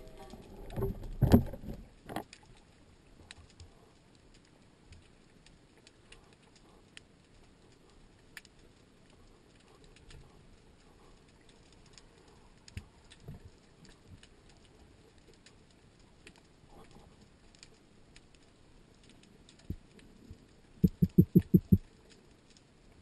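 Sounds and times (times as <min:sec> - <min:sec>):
underwater clicks and crackles: 0:00.0 - 0:23.0
dull low knocks: 0:20.8 - 0:21.8.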